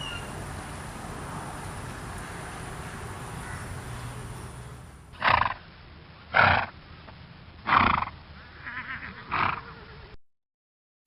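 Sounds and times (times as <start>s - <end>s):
horses calling: 5.2s - 5.6s, 6.3s - 6.8s, 7.7s - 10.0s.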